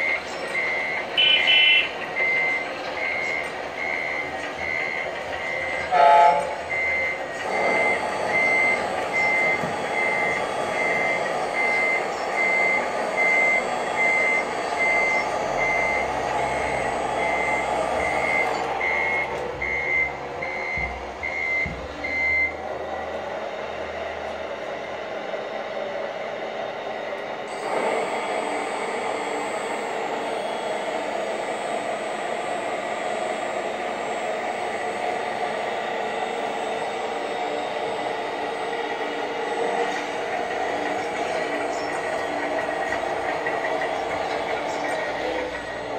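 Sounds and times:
high reversing warning beeps: 0:00.0 - 0:22.6, 0:27.5 - 0:45.9
truck engine drone: 0:00.0 - 0:45.9.

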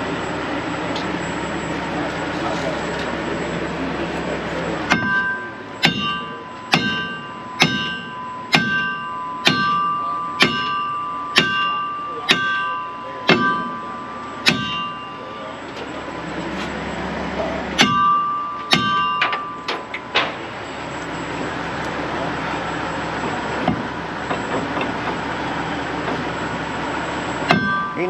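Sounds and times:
hammer striking steel: 0:04.9 - 0:16.0, 0:17.7 - 0:20.6, 0:27.5 - 0:28.0.

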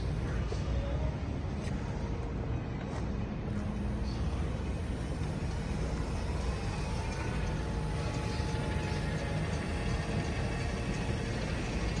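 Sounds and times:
electric motor whine: 0:04.6 - 0:12.0.

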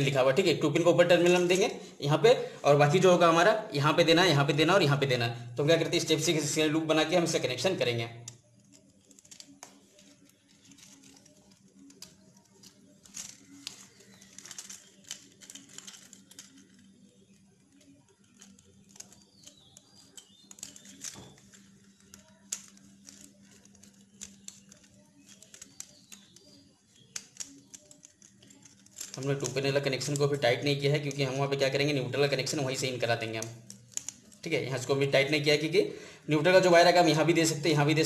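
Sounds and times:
clicks and rustles of wire handling: 0:07.3 - 0:35.7.

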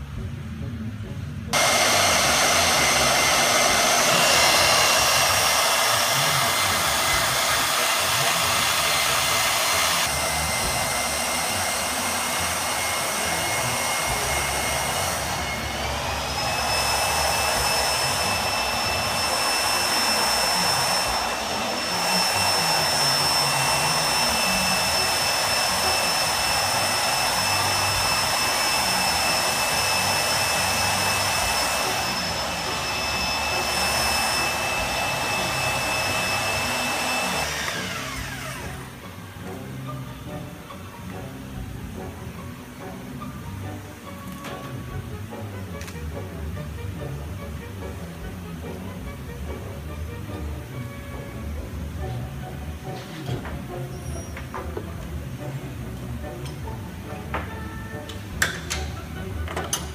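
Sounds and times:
electric motor whining: 0:01.5 - 0:40.6.

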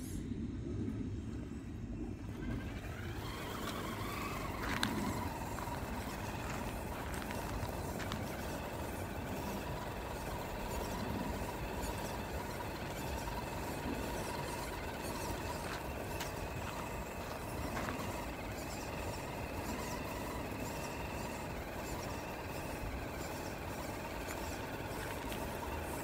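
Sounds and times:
wind rumble on microphone: 0:00.0 - 0:12.2
electric motor whine: 0:01.8 - 0:26.0
tyres crunching on gravel: 0:02.6 - 0:26.0.

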